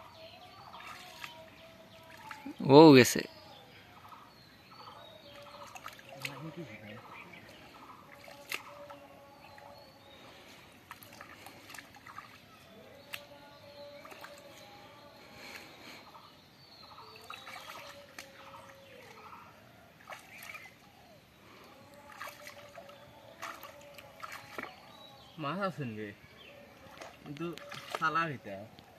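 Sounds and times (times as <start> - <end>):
hands splashing in muddy water: 8.1 - 9.6, 10.8 - 13.3, 17.1 - 19.2, 20.0 - 20.8, 22.0 - 25.0, 26.9 - 28.1.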